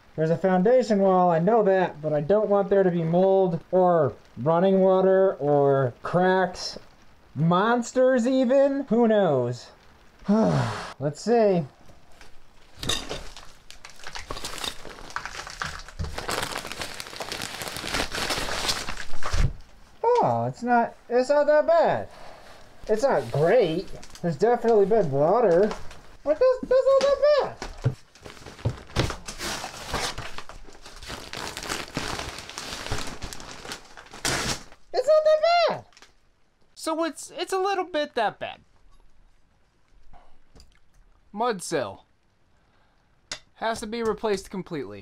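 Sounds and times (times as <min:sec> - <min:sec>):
paper facing crinkling and tearing: 0:12.1 - 0:19.7, 0:22.9 - 0:34.9.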